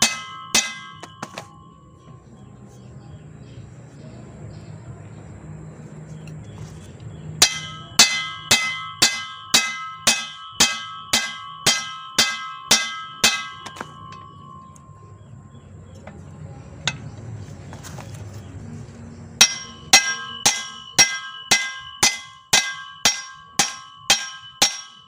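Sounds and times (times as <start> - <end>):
hammer striking steel: 0.0 - 1.7, 7.4 - 15.1, 19.4 - 25.0.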